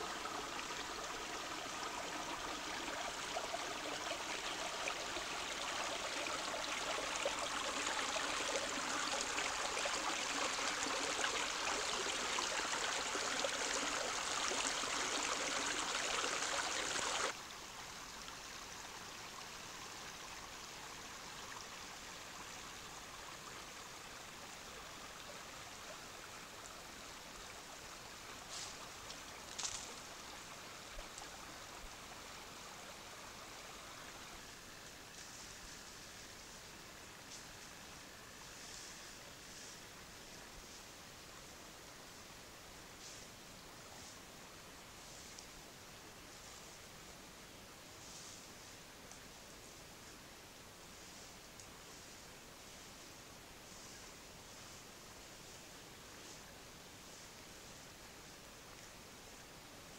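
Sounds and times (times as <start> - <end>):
stream trickling over stones: 0.0 - 41.7.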